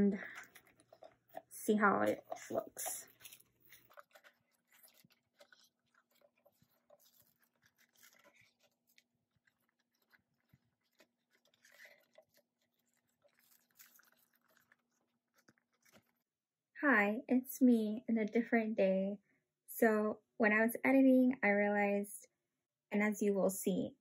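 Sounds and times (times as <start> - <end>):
plastic cover crinkling: 0.1 - 16.3.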